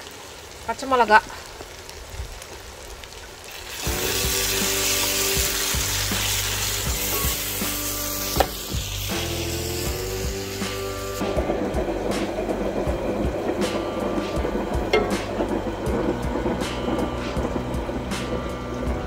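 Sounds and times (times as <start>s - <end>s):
sauce sizzling in a pot: 0.0s - 19.0s
spatula knocking against pot: 14.9s - 15.3s.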